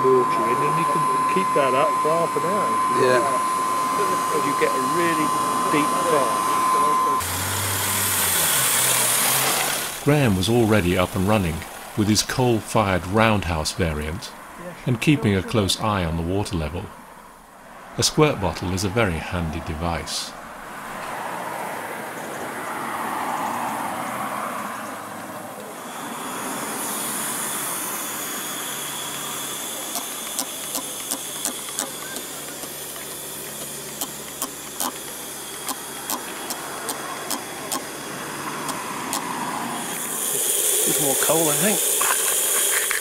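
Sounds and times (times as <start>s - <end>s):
model locomotive hissing steam: 0.0s - 14.1s, 25.7s - 43.0s
sharp little clicks: 29.9s - 37.9s, 38.6s - 39.3s.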